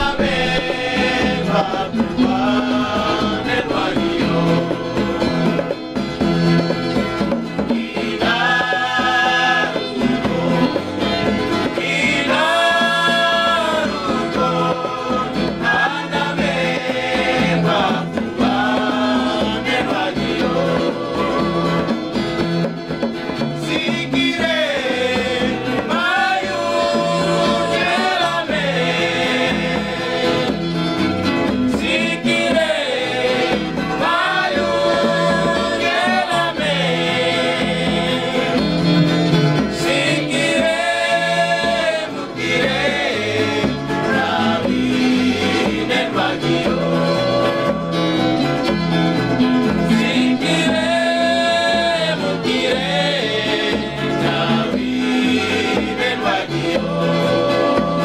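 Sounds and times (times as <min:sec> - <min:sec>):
men singing together: 0:00.0 - 0:58.0
strummed acoustic guitars: 0:00.0 - 0:58.0.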